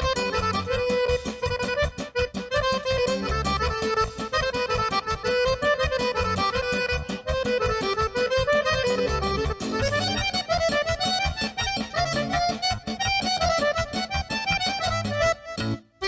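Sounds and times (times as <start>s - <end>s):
accordion folk dance music: 0.0s - 16.0s.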